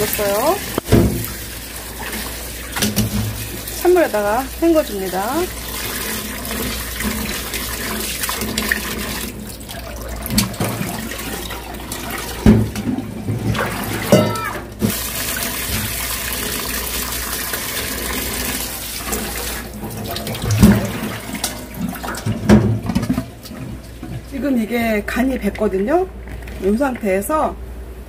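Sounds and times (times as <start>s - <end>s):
tap water running into a sink: 0.0s - 27.1s.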